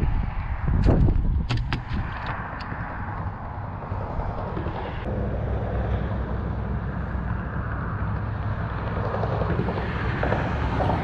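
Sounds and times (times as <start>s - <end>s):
motor vehicle rumbling past: 2.3s - 11.0s.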